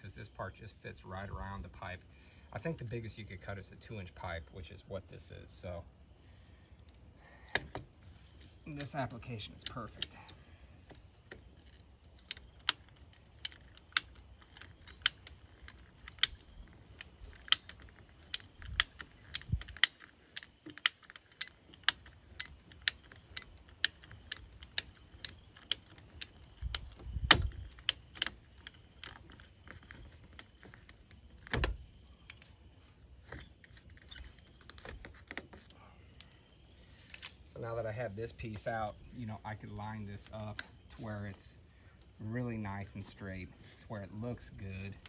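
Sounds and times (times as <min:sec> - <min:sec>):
ratcheting pipe cutter clicking: 0:11.6 - 0:30.5.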